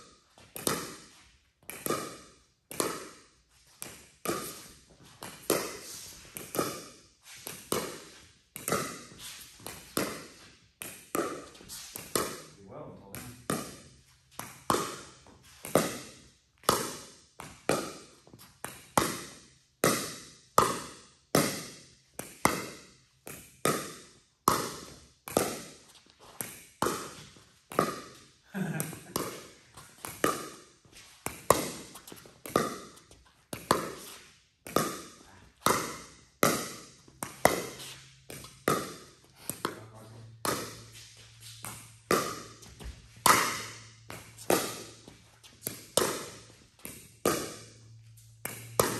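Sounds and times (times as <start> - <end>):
ball bouncing on court: 0.4 - 3.2, 3.8 - 48.9
paddles striking ball: 7.5 - 12.5, 13.1 - 13.8, 14.4 - 18.1, 18.7 - 25.8, 26.4 - 28.2, 28.8 - 47.8, 48.4 - 48.9.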